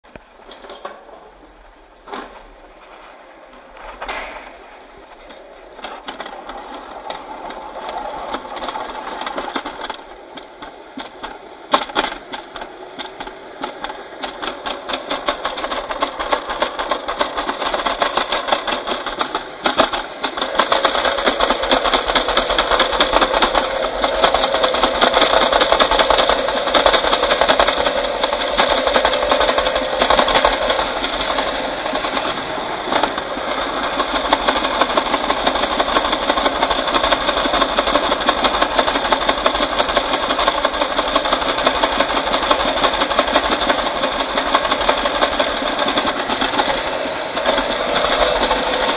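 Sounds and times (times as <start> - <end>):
steady whine: 0.0 - 48.9
sled wheels rattling on metal track: 0.4 - 48.9
sharp knocks: 3.8 - 31.8.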